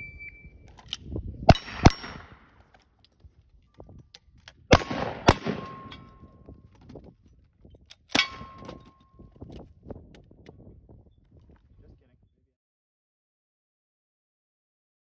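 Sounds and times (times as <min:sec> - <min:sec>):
rifle gunshots: 0:01.5 - 0:02.4, 0:04.7 - 0:06.2.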